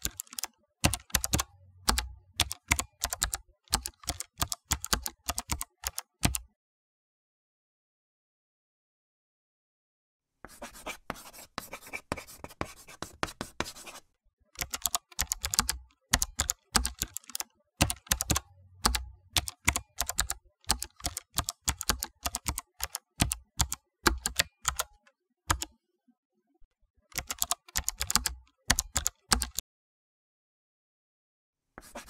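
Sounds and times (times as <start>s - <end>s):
computer keyboard typing: 0.0s - 6.5s, 14.6s - 25.7s, 27.1s - 29.6s.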